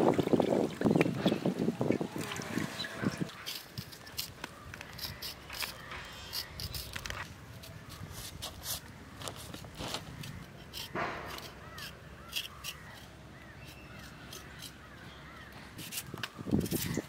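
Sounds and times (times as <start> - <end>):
small birds chirping: 0.9 - 17.0
crow cawing: 10.9 - 13.0.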